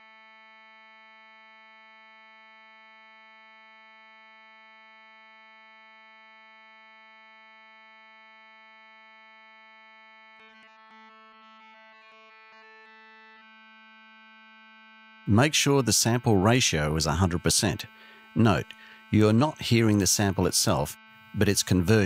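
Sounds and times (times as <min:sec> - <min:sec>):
buzzy synthesized tone: 0:15.1 - 0:22.0.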